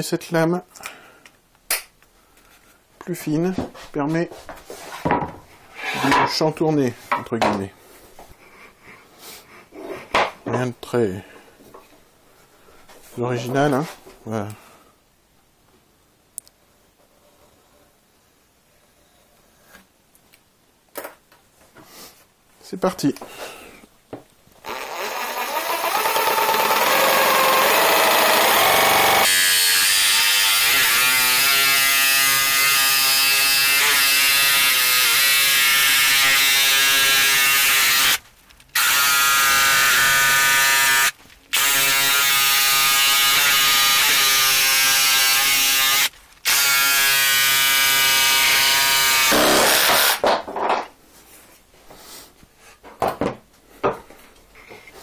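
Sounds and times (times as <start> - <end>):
power saw cutting wood: 24.6 - 38.2, 38.8 - 50.2.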